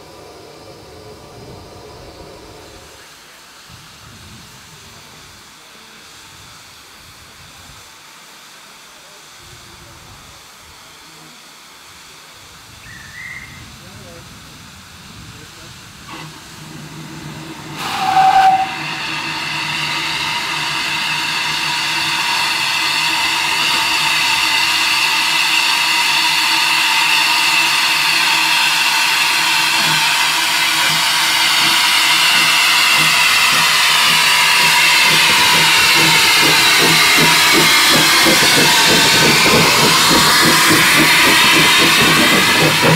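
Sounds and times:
steam hissing: 0:00.0 - 0:42.9
steam locomotive whistle toot: 0:17.5 - 0:37.8.

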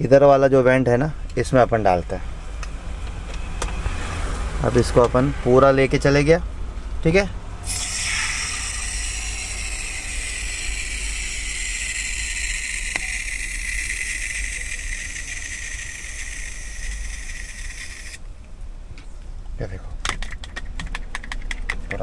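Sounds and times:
low steady hum: 0:06.0 - 0:20.0
aerosol spray hiss: 0:07.7 - 0:14.4.

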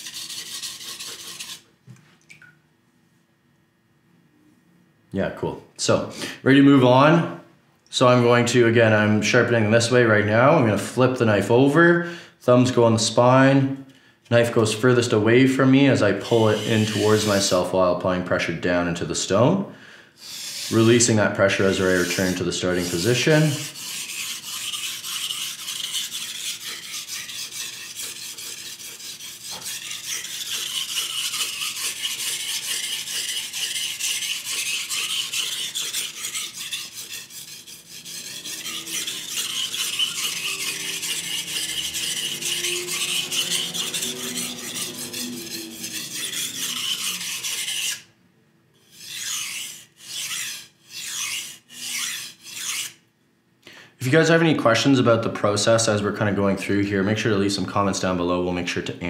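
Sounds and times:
knife scraping on whetstone: 0:00.0 - 0:01.6, 0:16.2 - 0:17.7, 0:20.2 - 0:48.1, 0:48.8 - 0:53.0.

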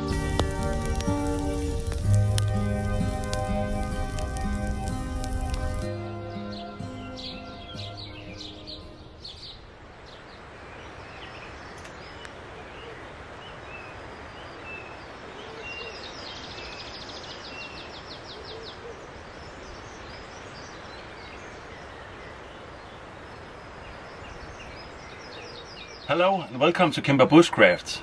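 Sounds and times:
bird trill: 0:00.0 - 0:09.6
birds singing: 0:00.0 - 0:27.1
outdoor background hiss: 0:00.0 - 0:28.0.

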